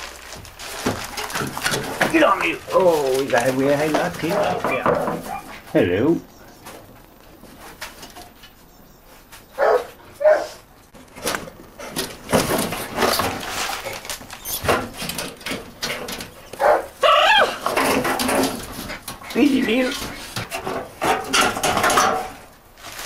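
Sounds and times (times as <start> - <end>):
rustling: 0.0 - 23.0
dog barking and whining: 4.4 - 5.7, 9.6 - 10.6, 16.6 - 17.6.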